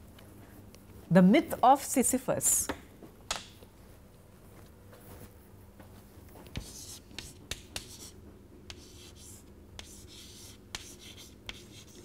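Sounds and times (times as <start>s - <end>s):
chalk tapping on chalkboard: 6.5s - 12.0s
chalk scratching on chalkboard: 6.6s - 12.0s.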